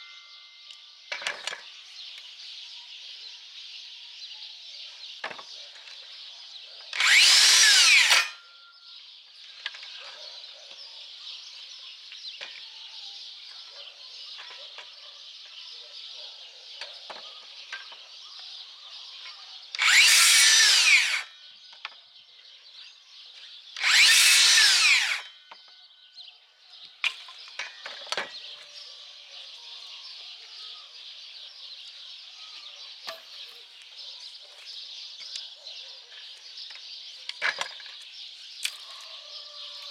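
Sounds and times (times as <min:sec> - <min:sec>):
circular saw cutting branches: 0:06.9 - 0:08.4, 0:19.7 - 0:21.4, 0:23.8 - 0:25.4.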